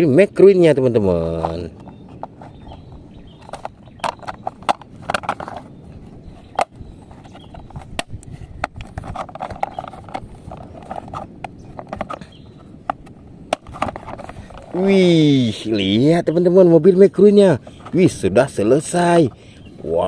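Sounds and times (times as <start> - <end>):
plastic rubbing: 1.2 - 15.5
plastic toy parts clicking: 3.4 - 5.6.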